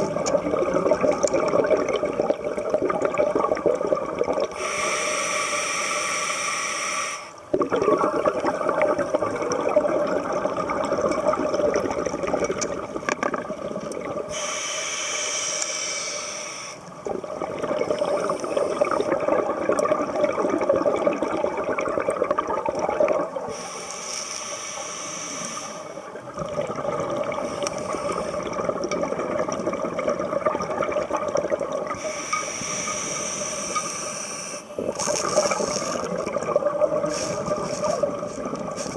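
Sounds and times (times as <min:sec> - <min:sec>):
exhaled bubbles rushing: 0:00.0 - 0:04.6, 0:07.5 - 0:14.3, 0:16.9 - 0:23.5, 0:26.1 - 0:32.1, 0:34.8 - 0:38.9
hissing regulator inhale: 0:04.5 - 0:07.4, 0:14.3 - 0:16.9, 0:23.5 - 0:26.1, 0:27.4 - 0:28.5, 0:32.0 - 0:36.1, 0:37.0 - 0:38.9.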